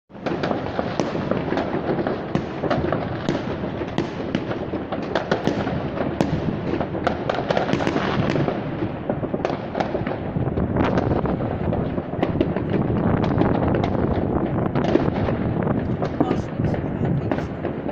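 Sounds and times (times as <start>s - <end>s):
firecracker bangs and cracks: 0.1s - 17.9s
rumble of fireworks explosions: 0.1s - 17.9s.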